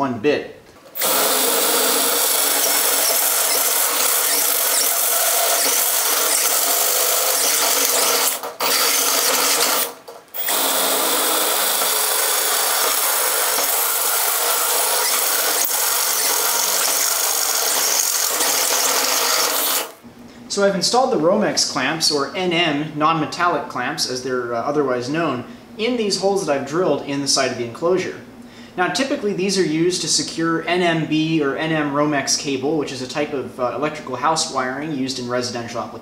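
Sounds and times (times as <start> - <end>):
drill boring through steel: 1.0 - 20.0.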